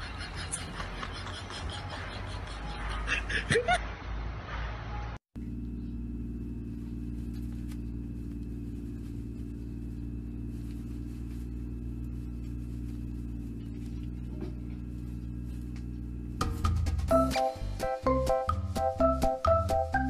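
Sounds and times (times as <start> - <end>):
low machine hum: 5.4 - 19.2.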